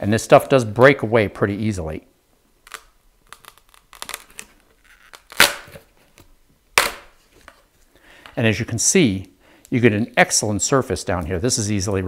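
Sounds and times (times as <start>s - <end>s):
glue cracking and crackling: 2.6s - 7.1s.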